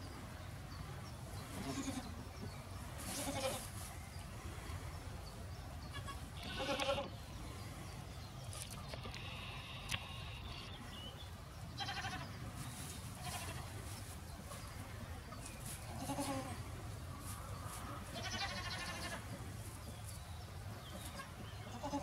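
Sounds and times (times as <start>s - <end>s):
goat bleating: 1.6s - 2.1s, 3.1s - 3.6s, 5.9s - 7.1s, 11.8s - 12.2s, 13.2s - 13.7s, 15.9s - 16.6s, 18.1s - 19.3s, 21.1s - 22.0s.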